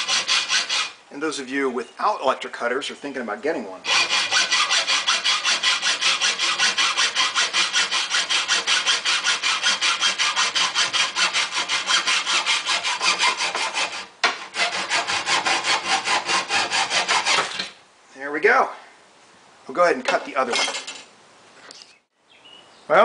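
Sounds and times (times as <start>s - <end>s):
hacksaw cutting metal: 0.0s - 1.0s, 3.8s - 17.8s.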